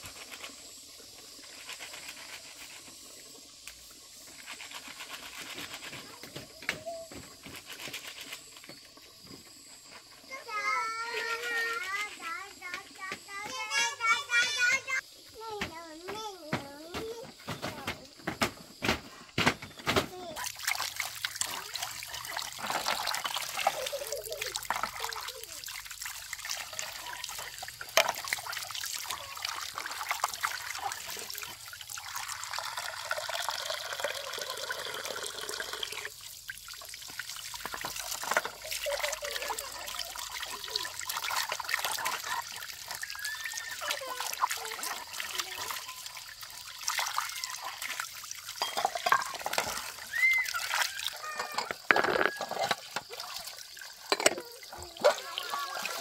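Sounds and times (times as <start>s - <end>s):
water trickling and splashing: 0.0s - 56.0s
small clicks and drips: 20.3s - 56.0s.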